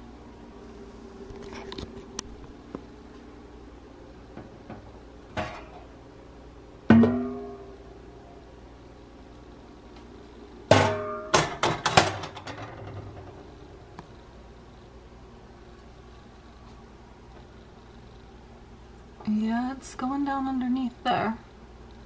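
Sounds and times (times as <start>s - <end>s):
metal cookware clanking: 5.3s - 5.9s, 6.9s - 7.7s, 10.7s - 13.3s.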